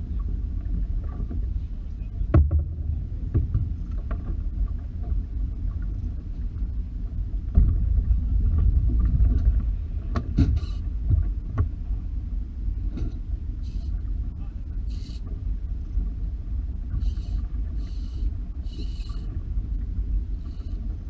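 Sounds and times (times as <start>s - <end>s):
boat engine rumble: 0.0s - 21.0s.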